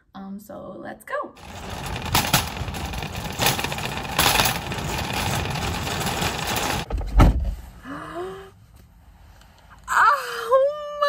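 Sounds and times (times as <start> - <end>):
shopping cart rattling on asphalt: 1.4 - 6.9.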